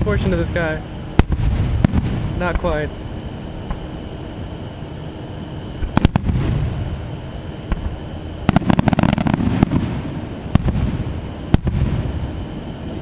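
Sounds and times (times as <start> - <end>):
fireworks bangs: 0.0 - 2.9, 5.8 - 7.0, 7.7 - 12.2
low rumbling echo: 0.0 - 4.9, 5.7 - 12.4
crackling fireworks reports: 0.0 - 13.0.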